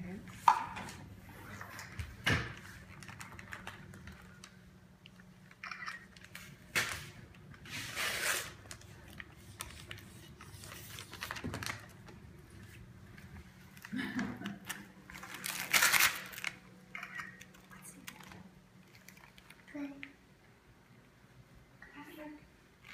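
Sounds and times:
wrapping paper crinkling and tearing: 0:02.6 - 0:04.6, 0:06.1 - 0:12.1, 0:14.6 - 0:16.6.

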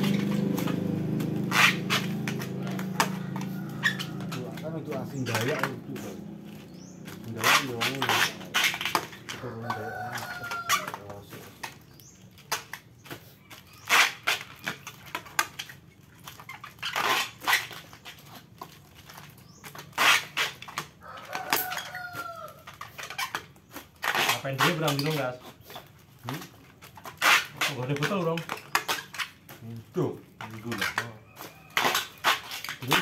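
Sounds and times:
plastic bags crinkling: 0:00.0 - 0:33.0
rooster crowing: 0:02.5 - 0:04.7, 0:09.3 - 0:11.1, 0:21.0 - 0:22.7.

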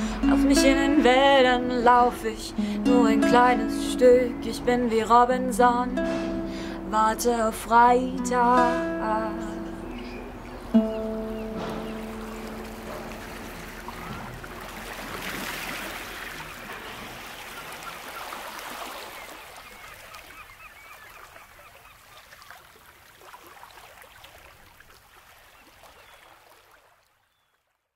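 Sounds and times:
rushing water: 0:00.0 - 0:03.8, 0:09.6 - 0:27.2
birds chirping: 0:09.3 - 0:22.4.

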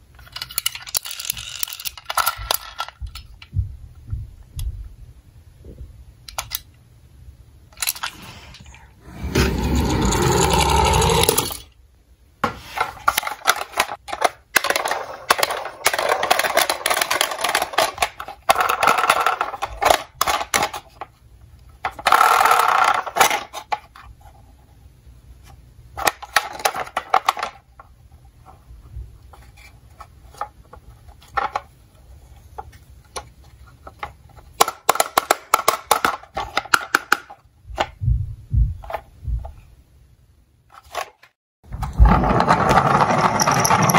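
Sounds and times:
toy cars clattering and rattling: 0:00.2 - 0:03.4, 0:07.7 - 0:08.6, 0:09.3 - 0:11.8, 0:12.8 - 0:21.1, 0:21.8 - 0:24.1, 0:26.0 - 0:27.7, 0:29.3 - 0:31.7, 0:32.6 - 0:37.4, 0:40.7 - 0:43.9
toy car rolling scrape: 0:07.9 - 0:11.7, 0:41.8 - 0:43.9.

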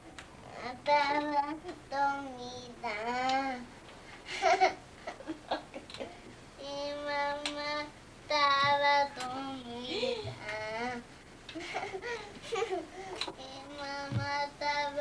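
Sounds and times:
toddler singing wordlessly: 0:00.5 - 0:03.7, 0:06.6 - 0:11.1, 0:13.3 - 0:15.0
faint knocks: 0:14.0 - 0:14.4.

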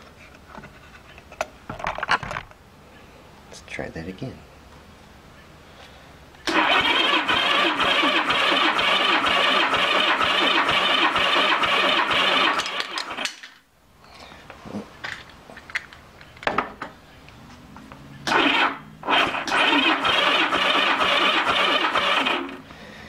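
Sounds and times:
engine cranked by electric starter: 0:06.4 - 0:13.4, 0:18.2 - 0:22.9.

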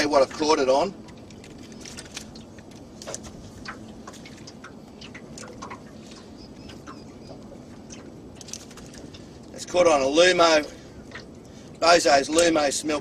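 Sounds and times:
small clicks of fishing tackle: 0:01.1 - 0:05.8.

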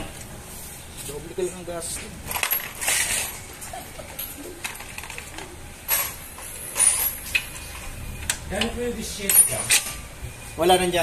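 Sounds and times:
metal tools clinking: 0:02.3 - 0:08.0, 0:08.6 - 0:10.0.

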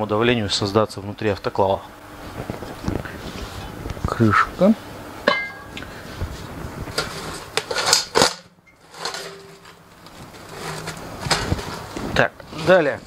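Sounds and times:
metal piece knocking and ringing: 0:05.3 - 0:05.8.

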